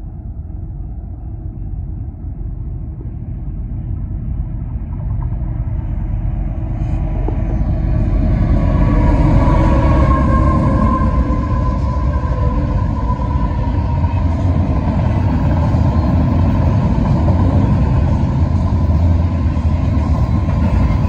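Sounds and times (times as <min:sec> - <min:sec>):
diesel locomotive engine rumble: 0:00.0 - 0:21.0
train wheel and rail noise: 0:00.0 - 0:21.0.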